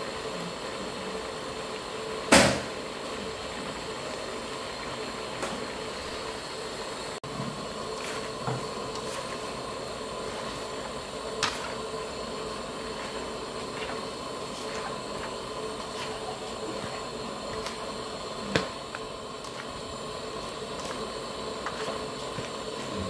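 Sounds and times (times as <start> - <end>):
food sizzling in a wok: 0.0 - 23.0
spatula stirring and scraping: 7.2 - 23.0.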